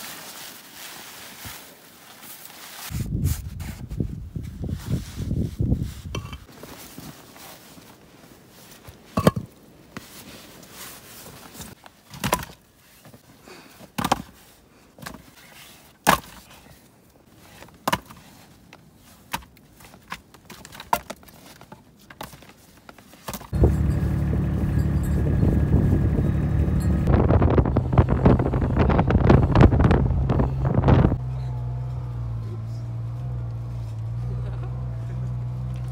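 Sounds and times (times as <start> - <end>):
blizzard wind buffeting microphone: 2.9 - 6.2, 23.5 - 31.3.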